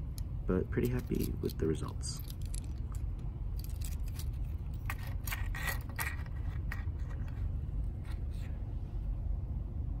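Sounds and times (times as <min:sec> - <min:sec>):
steady low hum: 0:00.0 - 0:10.0
plastic toy clicks and rattles: 0:00.8 - 0:02.8.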